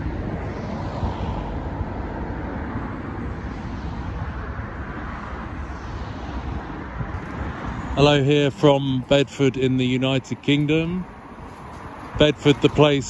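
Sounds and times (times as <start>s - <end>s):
traffic rumble: 0.0s - 13.0s.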